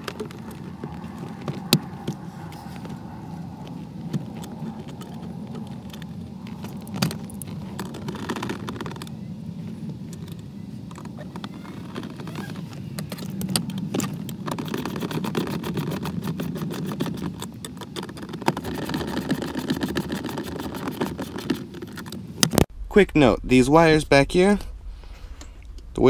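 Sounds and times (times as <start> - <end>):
steady low hum: 0.0 - 14.5, 20.4 - 26.0.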